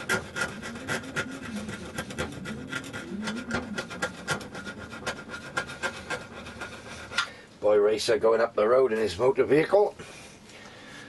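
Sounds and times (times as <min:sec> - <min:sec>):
screwdriver scraping paint: 0:00.0 - 0:07.3.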